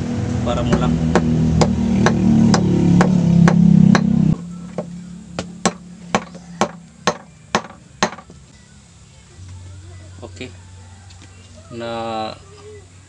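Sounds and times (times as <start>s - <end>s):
background music: 0.0s - 13.0s
hammer tapping on metal pin: 4.7s - 8.3s.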